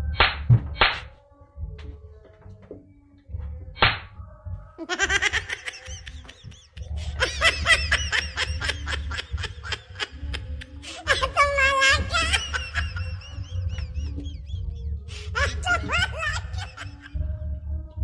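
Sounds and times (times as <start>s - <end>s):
background music: 0.0s - 18.0s
cartoonish laughter: 4.8s - 17.2s.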